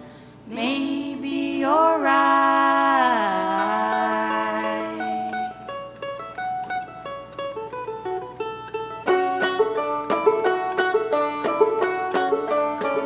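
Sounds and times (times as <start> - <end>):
plucked string instrument picking: 3.2 - 13.0.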